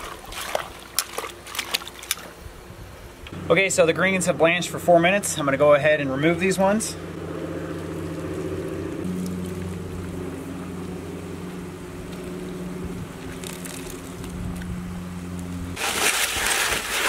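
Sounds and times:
low mechanical hum: 0.0 - 17.0
water boiling and bubbling: 7.2 - 17.0.

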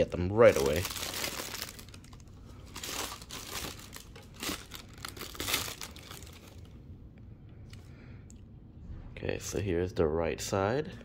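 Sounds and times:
tissue paper crinkling: 0.3 - 6.6.

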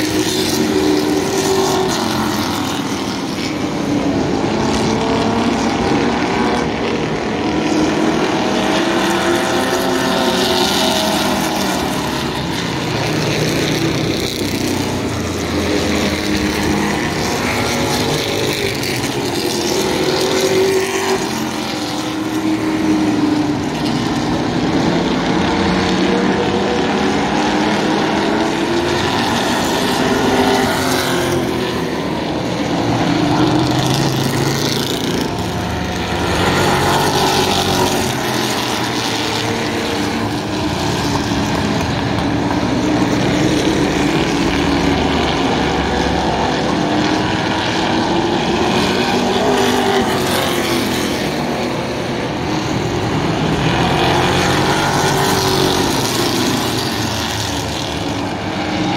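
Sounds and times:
race car engines passing: 0.0 - 58.9.

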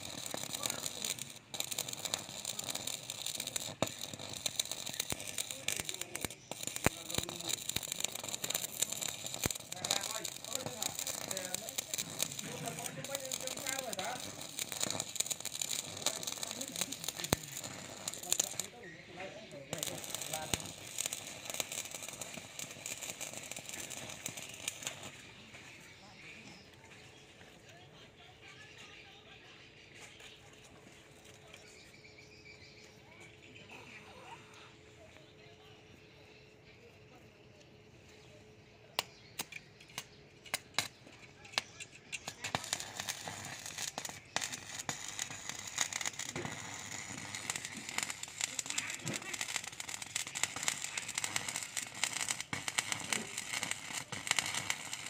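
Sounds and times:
welding arc crackling and popping: 0.0 - 27.2, 39.0 - 55.0.

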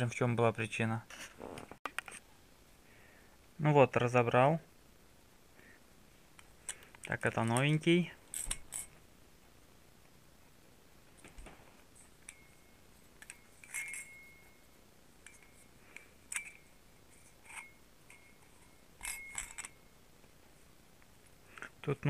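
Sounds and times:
plastic and metal parts clinking: 13.2 - 14.5, 15.2 - 19.8.

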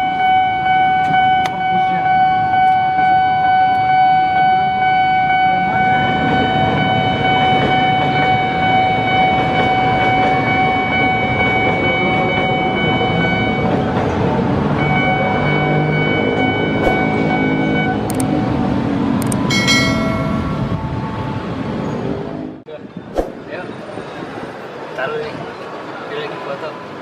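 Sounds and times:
train rumbling over crossing: 0.0 - 22.6
steady high tone: 14.8 - 18.1, 19.4 - 21.6.

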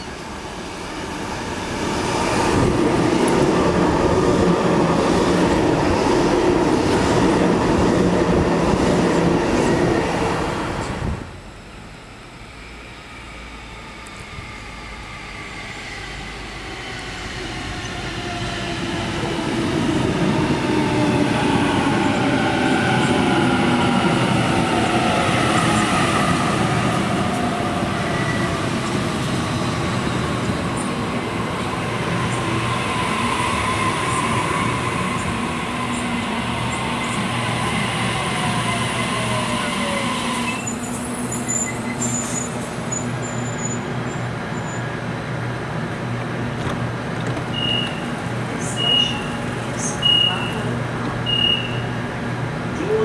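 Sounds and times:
standing train hum: 0.0 - 53.0.

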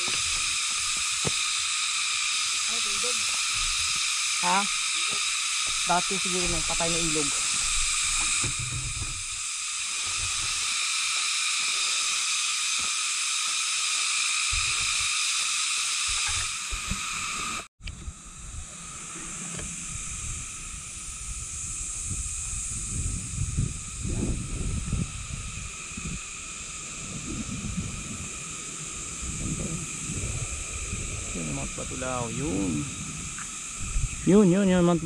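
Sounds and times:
high-pitched hiss: 0.0 - 35.0
low rumble: 17.9 - 35.0.

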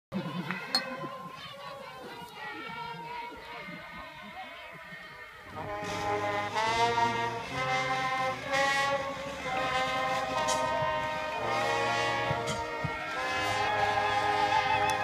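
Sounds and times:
brass band playing slow chords: 5.5 - 15.0.

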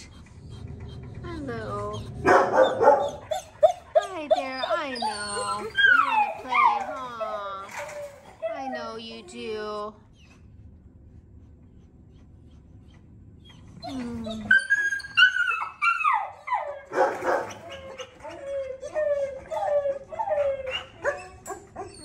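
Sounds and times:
dog whining: 0.0 - 10.6, 11.7 - 22.0
dog barking: 2.2 - 4.9, 16.9 - 17.6.

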